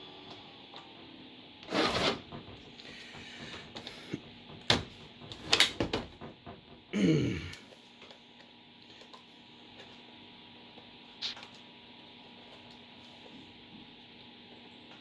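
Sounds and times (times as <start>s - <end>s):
sharp plastic clicks and knocks: 2.2s - 6.9s.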